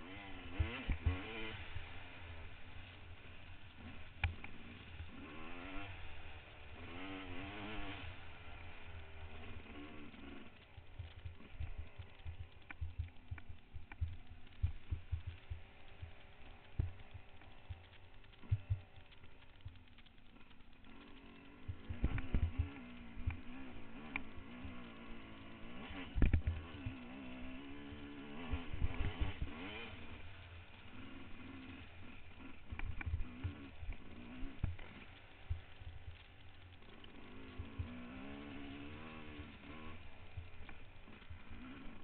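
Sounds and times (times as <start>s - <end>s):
motorcycle engine revving: 0.0s - 42.0s.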